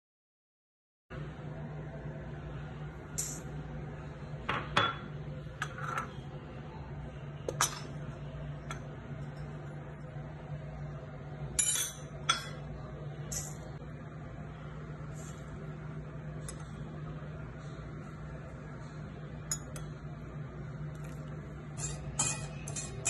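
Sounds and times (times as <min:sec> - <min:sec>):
steady low hum: 0:01.1 - 0:23.0
metal utensils clinking on bowl: 0:11.6 - 0:12.6, 0:13.3 - 0:13.6, 0:19.5 - 0:19.9, 0:21.0 - 0:23.0.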